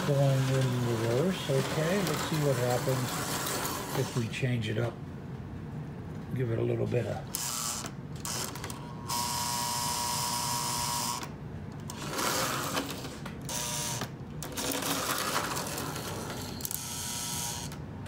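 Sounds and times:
toy train motor whirring: 0.0s - 4.2s, 11.9s - 17.8s.

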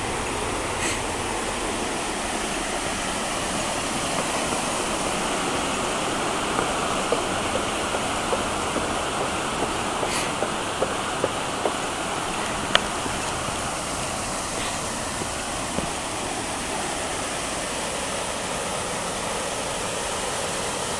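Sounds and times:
mountain stream rushing: 0.0s - 20.9s.

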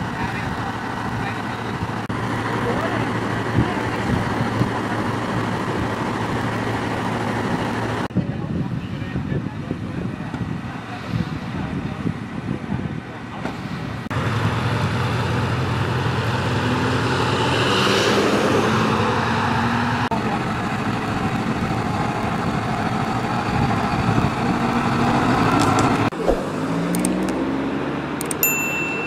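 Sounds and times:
engines running: 0.0s - 8.1s, 13.3s - 29.0s
vehicle passing: 24.9s - 28.2s.

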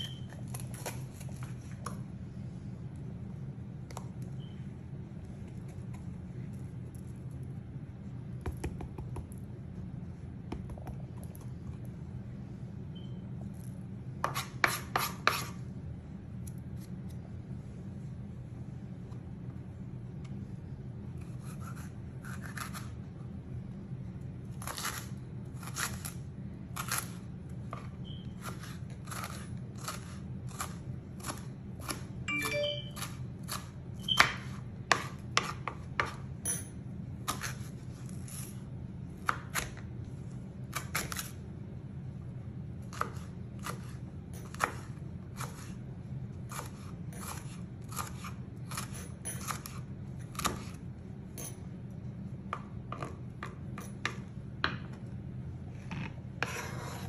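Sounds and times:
steady low hum: 0.0s - 57.0s
knife tapping cutting board: 8.4s - 9.4s, 10.5s - 11.3s.

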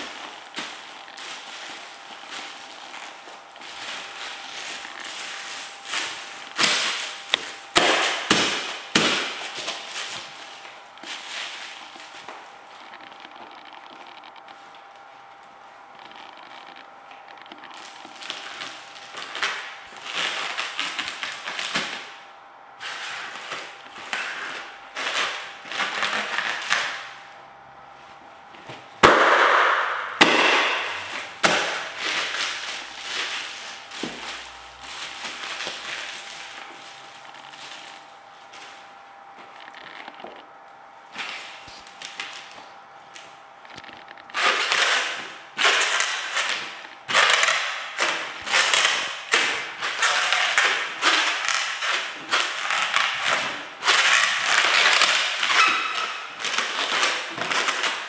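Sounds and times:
foil balloons crinkling underfoot: 0.0s - 22.2s, 22.8s - 58.0s
balloon bursting pop: 29.0s - 31.8s.

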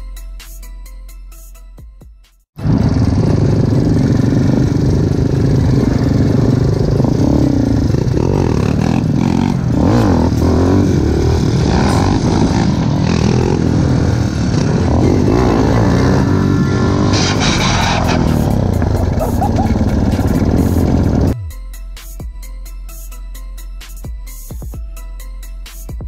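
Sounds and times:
quad bike engine revving: 2.6s - 21.4s.

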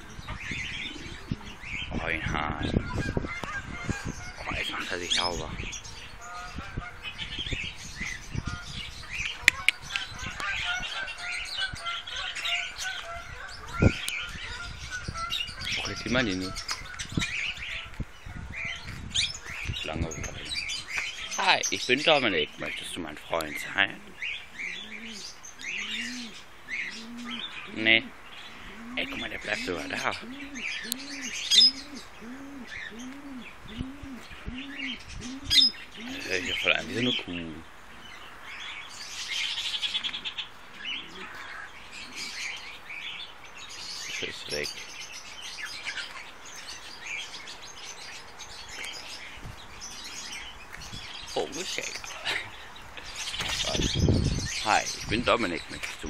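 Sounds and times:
dove cooing: 0.0s - 1.8s, 23.6s - 37.3s, 40.8s - 42.5s
birds chirping: 0.0s - 56.0s.

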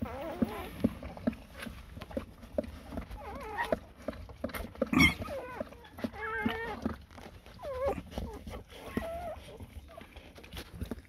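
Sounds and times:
puppy squealing: 3.2s - 3.8s, 4.9s - 6.9s, 7.6s - 9.4s.

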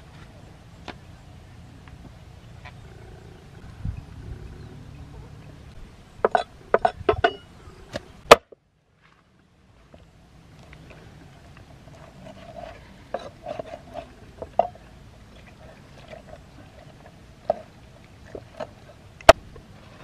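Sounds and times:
cleaver scraping fish: 10.7s - 20.0s.

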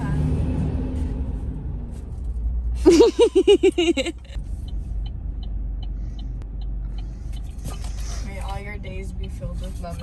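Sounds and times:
car engine and road rumble: 0.0s - 10.0s
faint regular ticking: 4.3s - 10.0s.

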